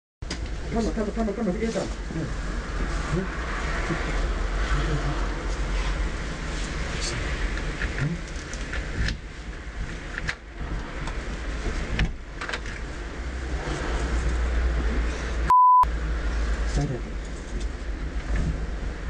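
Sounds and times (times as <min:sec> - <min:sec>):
low rumble of traffic: 0:00.2 - 0:19.0
short electronic beep: 0:15.5 - 0:15.9.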